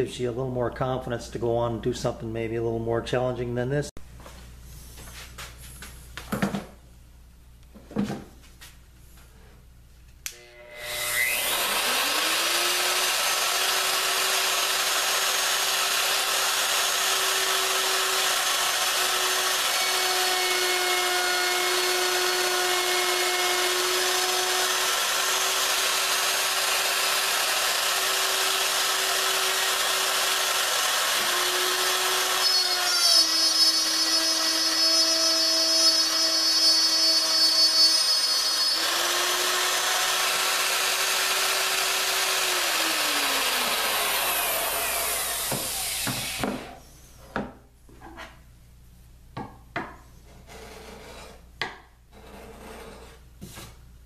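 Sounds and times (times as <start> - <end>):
router cutting wood: 10.3 - 46.8
router whining: 10.3 - 46.8.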